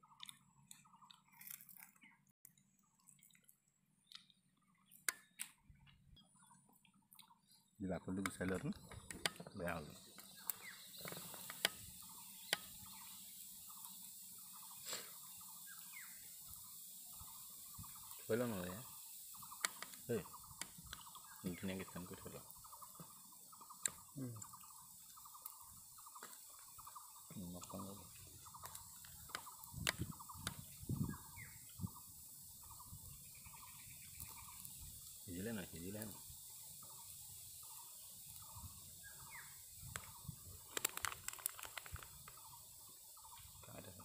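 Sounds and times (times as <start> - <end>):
bird chirping: 0.0 - 44.0
sharp clicks: 4.9 - 6.0, 10.1 - 11.8, 12.4 - 12.7, 19.4 - 21.2, 39.9 - 42.4
steady hiss: 7.8 - 44.0
animal pulsed trills: 8.8 - 44.0
rustling on plastic tarp: 40.6 - 42.4.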